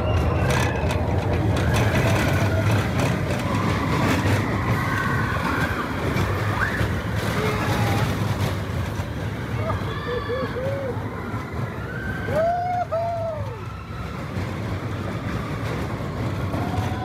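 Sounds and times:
rattling clatter: 0:00.0 - 0:09.8
roller coaster wheels rumbling: 0:00.0 - 0:17.0.

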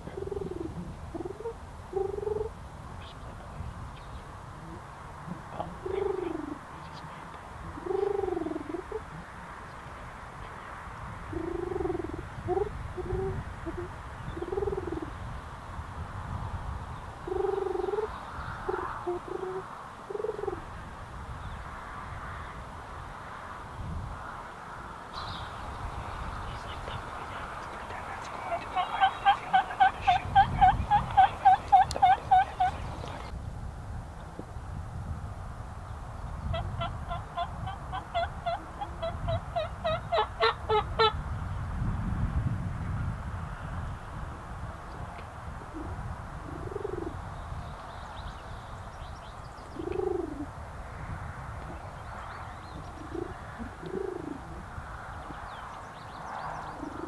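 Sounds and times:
low rolling animal calls: 0:07.6 - 0:09.4, 0:11.3 - 0:15.1, 0:17.2 - 0:20.7, 0:25.2 - 0:33.3
turkey yelps: 0:28.5 - 0:33.2, 0:36.5 - 0:41.2.

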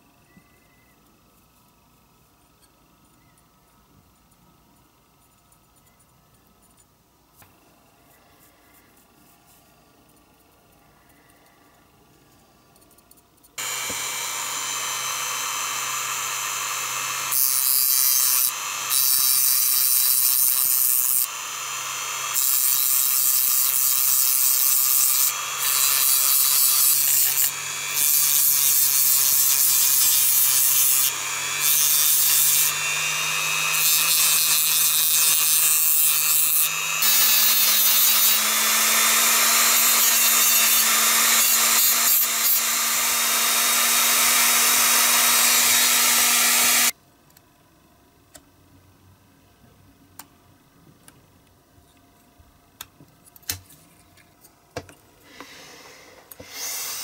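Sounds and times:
rotary tool grinding metal: 0:13.6 - 0:47.0.

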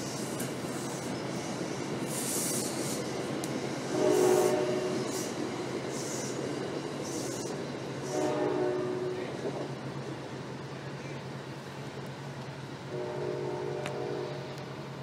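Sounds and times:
train running on rails: 0:00.0 - 0:15.0
train horn chord: 0:03.9 - 0:05.2, 0:08.1 - 0:09.3, 0:12.9 - 0:14.6.

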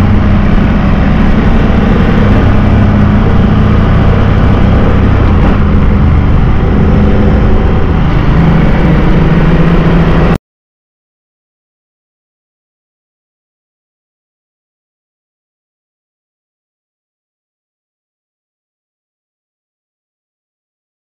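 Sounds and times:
motorcycle engine running: 0:00.0 - 0:10.4
road noise: 0:00.0 - 0:10.4
wind: 0:00.0 - 0:10.4.

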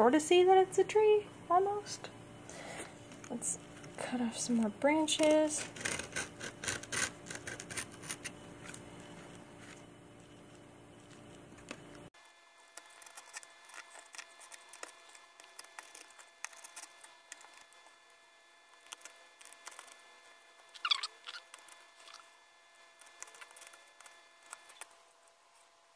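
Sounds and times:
knife blade cutting canvas: 0:05.2 - 0:08.8.

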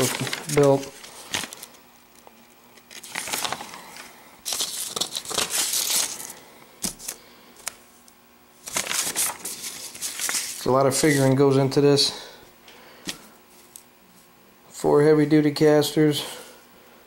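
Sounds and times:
paper sheets rustling: 0:00.0 - 0:01.8, 0:02.9 - 0:07.8, 0:08.6 - 0:11.4.

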